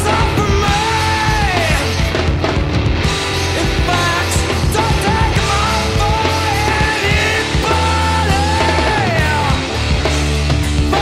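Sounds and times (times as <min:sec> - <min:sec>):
math rock band playing: 0:00.0 - 0:11.0
wavering sung vocal: 0:03.6 - 0:09.7.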